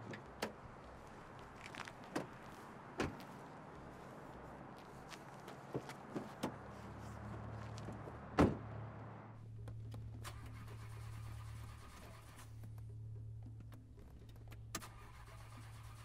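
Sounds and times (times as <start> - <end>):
car door shutting thud: 8.4 - 8.7.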